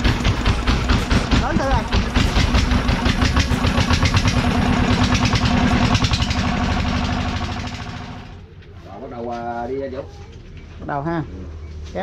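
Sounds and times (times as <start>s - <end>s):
diesel engine running: 0.0s - 8.6s.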